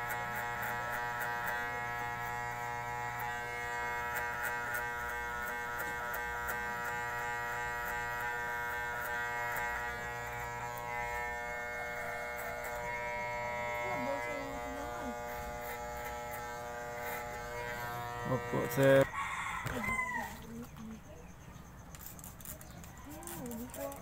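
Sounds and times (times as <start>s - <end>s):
electric hair clippers buzzing: 0.0s - 19.8s.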